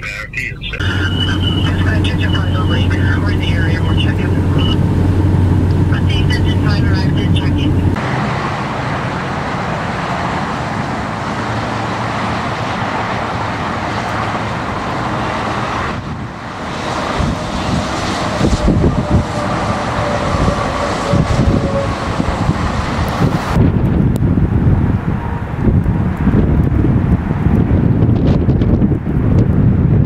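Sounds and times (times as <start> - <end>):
wind buffeting microphone: 0.4 - 8.1, 9.0 - 30.0
tyres hissing on wet road: 8.0 - 16.6.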